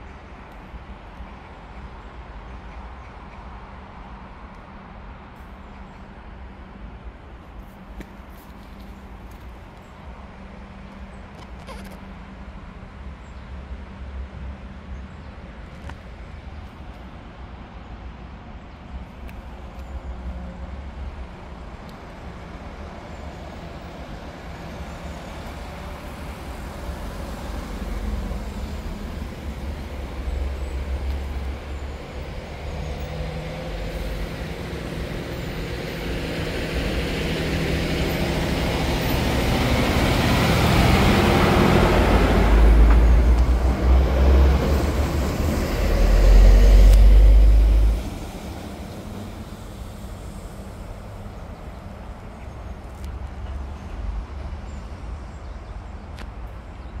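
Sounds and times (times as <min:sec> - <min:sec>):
road noise: 0:00.0 - 0:57.0
heavy vehicle engine hum: 0:19.0 - 0:54.3.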